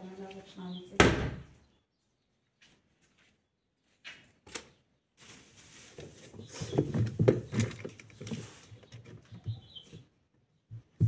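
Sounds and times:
plastic hose rustling and clicking: 4.1s - 10.1s.

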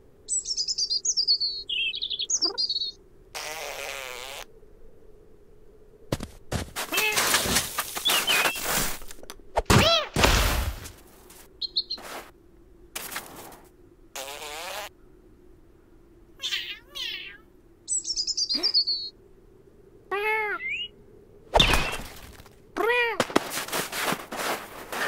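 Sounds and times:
descending trilled bird tweet: 0.3s - 3.0s, 11.6s - 12.0s, 17.9s - 19.2s, 20.6s - 21.0s
soft thuds in snow: 6.1s - 12.3s, 13.0s - 13.7s, 23.2s - 25.0s
cartoon cat cry: 16.4s - 17.4s, 20.1s - 20.9s, 22.8s - 23.2s.

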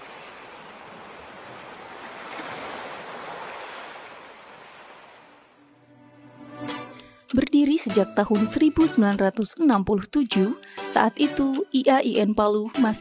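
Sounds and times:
sea waves washing onto beach: 0.0s - 5.6s.

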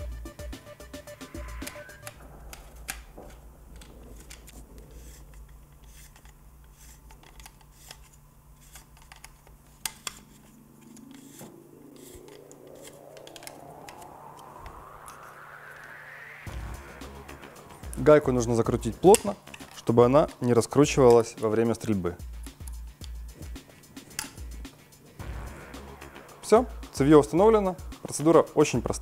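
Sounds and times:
rising tone: 0.0s - 5.7s, 10.3s - 19.6s, 24.4s - 28.2s.

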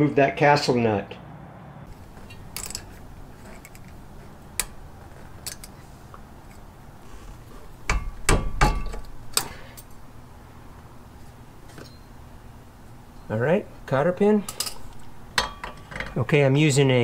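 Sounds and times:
hand tool metallic clicks and scrapes: 2.2s - 4.0s, 14.4s - 15.0s
metallic knocks with ring: 7.9s - 9.0s.

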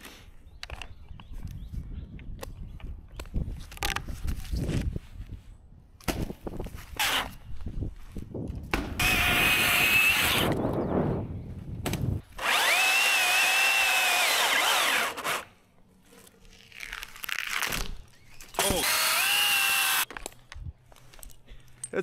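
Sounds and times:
chainsaw cutting wood: 8.8s - 10.6s, 12.3s - 15.5s, 18.6s - 20.1s.

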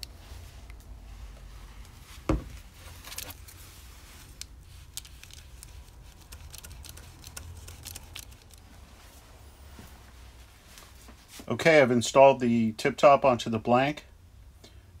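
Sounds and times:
single thump: 2.3s - 2.5s.

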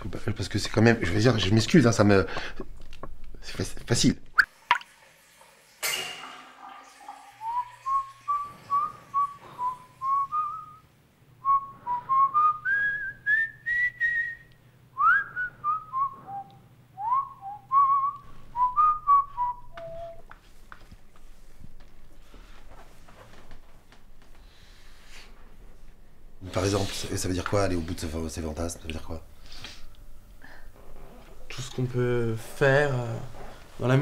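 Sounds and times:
person whistling a tune: 7.4s - 10.8s, 11.4s - 20.3s.

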